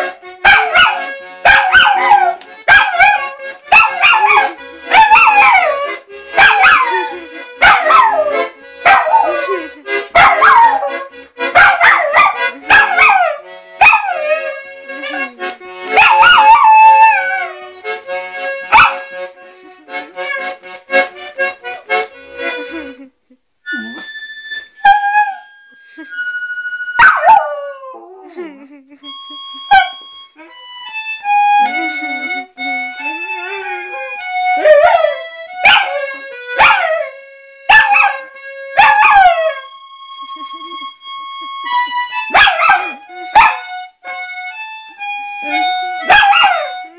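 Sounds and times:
reed instrument playing: 0.0 - 28.2, 29.0 - 46.9
puppy howling: 0.5 - 17.6, 24.8 - 25.7, 27.0 - 28.3, 32.4 - 39.8, 46.0 - 46.9.

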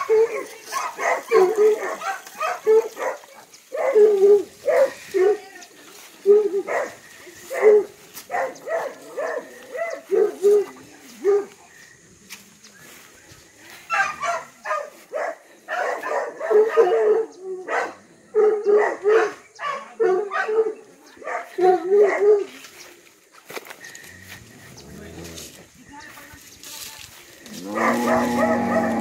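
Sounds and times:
dog barking: 0.0 - 5.4, 6.3 - 11.6, 13.9 - 22.6, 27.7 - 29.0.

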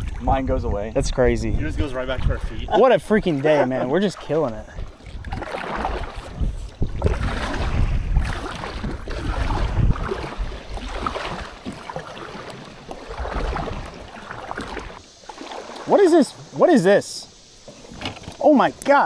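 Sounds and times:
wind rumbling on microphone: 0.0 - 3.3, 4.1 - 15.0
water splashing around a kayak: 0.0 - 19.0.

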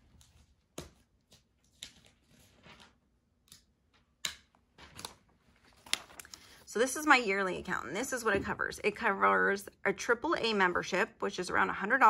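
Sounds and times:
paper sheets rustling: 0.0 - 3.2, 4.8 - 6.7.

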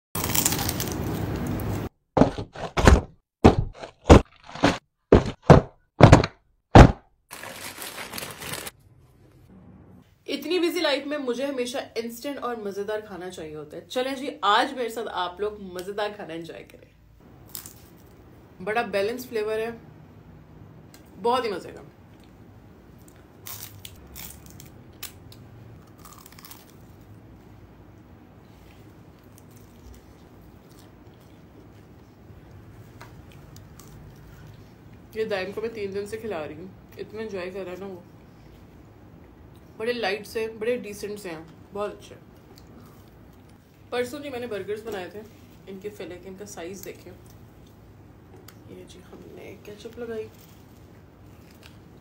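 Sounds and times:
crunching spring roll: 0.2 - 8.8, 23.0 - 27.2
sharp thuds: 2.2 - 7.1.

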